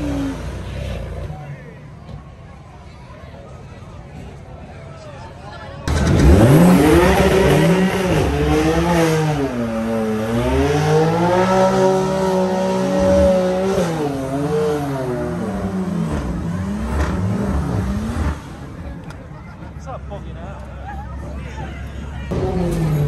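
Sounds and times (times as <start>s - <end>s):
car engine revving: 5.9s - 18.8s.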